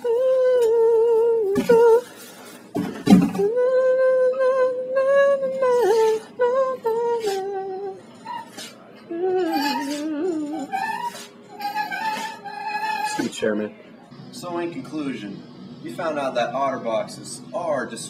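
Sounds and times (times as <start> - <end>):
person humming: 0.0 - 2.1, 3.1 - 8.0, 9.1 - 11.0.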